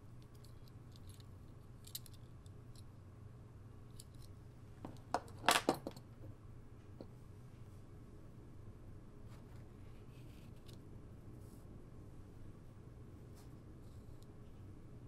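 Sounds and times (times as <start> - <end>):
toy set down on table: 5.1 - 6.0.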